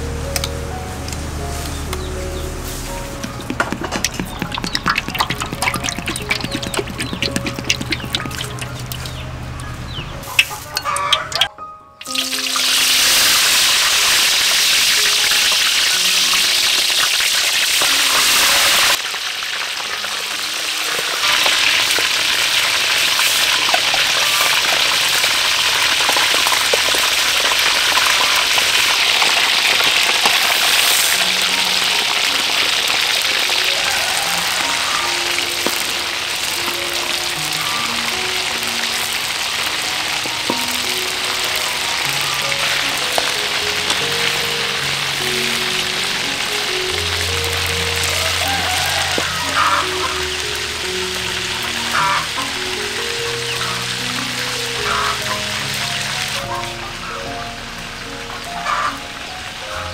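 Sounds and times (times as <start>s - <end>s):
oil sizzling in a wok: 1.5s - 9.3s, 12.0s - 59.9s
metal spatula turning fish: 3.0s - 9.2s, 26.1s - 34.9s.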